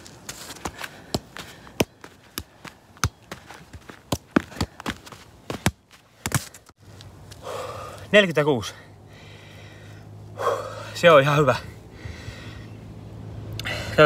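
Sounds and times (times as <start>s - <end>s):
foot tapping football: 0.1s - 6.7s.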